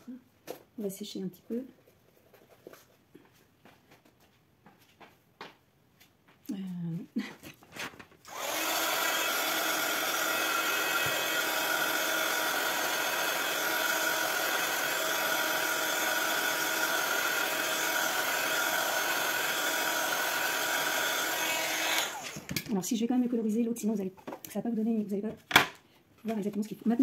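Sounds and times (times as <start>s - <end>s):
heat tool fan whirring: 8.3s - 22.6s.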